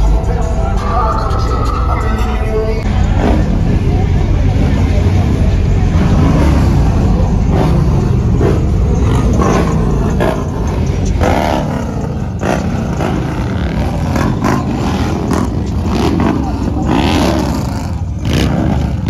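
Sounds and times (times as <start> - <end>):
vehicle low rumble: 0.0 - 19.0.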